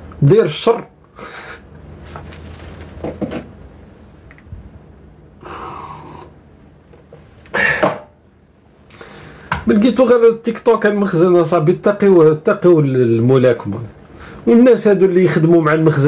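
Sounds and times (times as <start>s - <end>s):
man slurping a drink: 5.4s - 6.4s
short breath: 5.4s - 6.4s, 8.9s - 9.6s.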